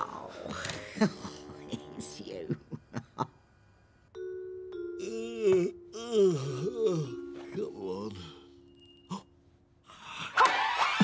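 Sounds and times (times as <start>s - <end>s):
xylophone-like music cue: 4.2s - 9.4s.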